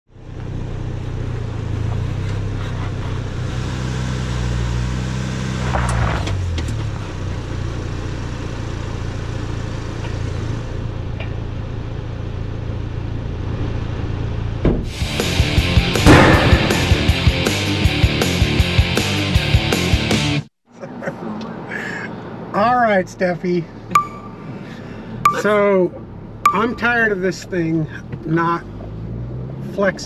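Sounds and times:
truck engine rumbling: 6.3 - 19.0, 23.6 - 28.1.

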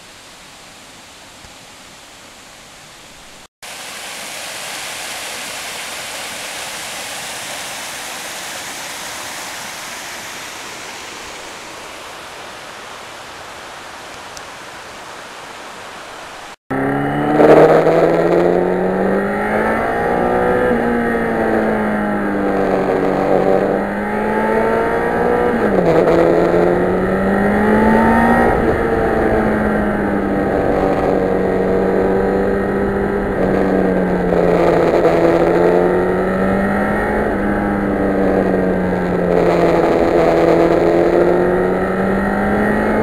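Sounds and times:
creek running over rocks: 0.0 - 16.6
motorcycle engine revving: 16.7 - 43.0.

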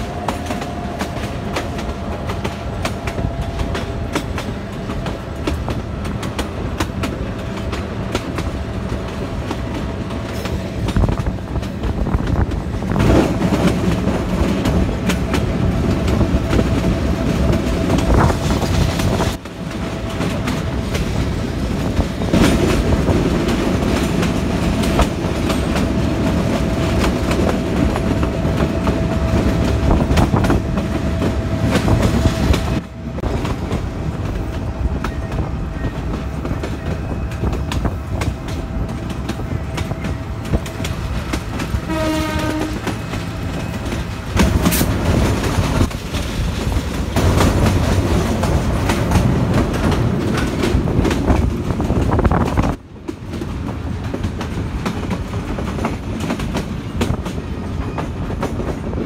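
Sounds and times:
train wheels clattering on rails: 0.0 - 59.0
train horn: 41.6 - 43.9.

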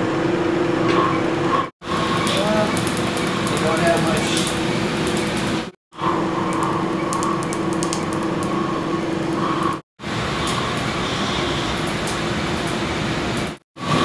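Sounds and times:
laser machine fan hum: 1.8 - 14.0.

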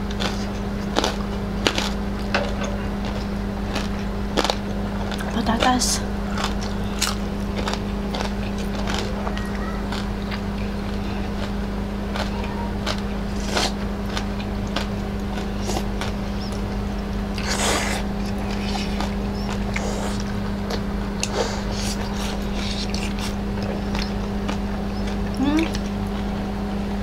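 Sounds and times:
chewing and mouth noises: 0.0 - 26.5
low hum: 0.0 - 27.0.

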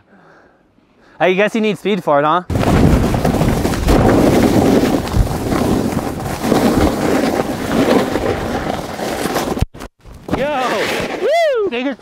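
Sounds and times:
low thumps: 2.5 - 7.6
wind buffeting microphone: 2.5 - 8.7
snowboard scraping over snow: 2.5 - 11.9.

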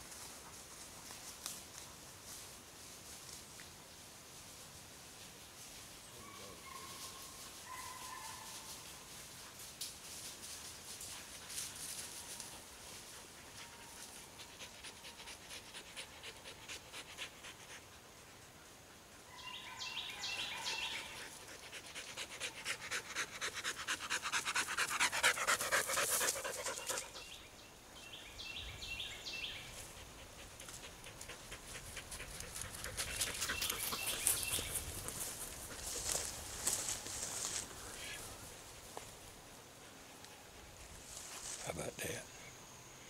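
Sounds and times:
dog panting heavily: 13.0 - 18.1, 21.0 - 27.4, 29.8 - 36.2.

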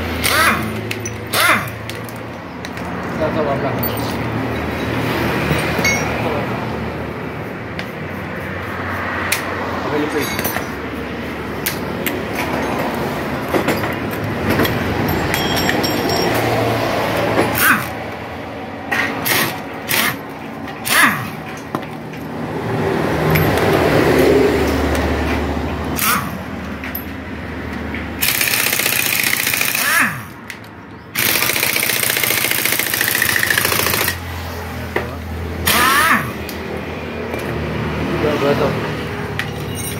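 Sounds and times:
metallic clinks of tools: 0.2 - 2.8, 3.7 - 6.4, 10.1 - 10.8, 11.6 - 16.8, 23.3 - 23.7, 39.4 - 39.9
impact wrench rattling: 0.2 - 2.9, 11.6 - 16.5, 28.2 - 30.4, 31.2 - 34.2.

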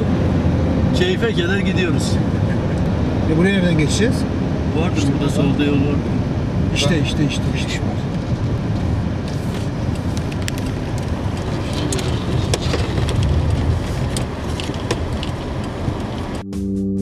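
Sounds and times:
off-road vehicle engine and tyres: 0.0 - 16.5
stones knocking and body rattling: 9.6 - 16.3
guitar music: 16.4 - 17.0.

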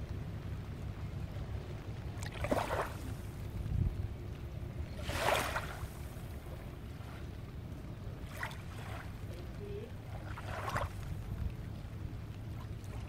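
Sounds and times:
small waves lapping on beach: 0.0 - 13.0
soft water splashes: 0.0 - 13.0
steady low rumble: 0.0 - 13.0.

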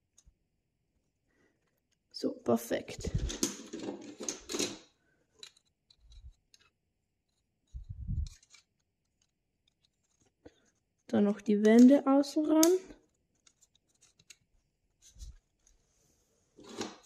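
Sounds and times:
plastic parts clattering: 2.8 - 15.8, 16.6 - 17.0.

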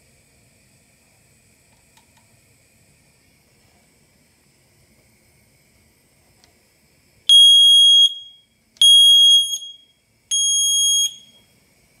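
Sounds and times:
smoke detector beeping: 7.3 - 11.5.

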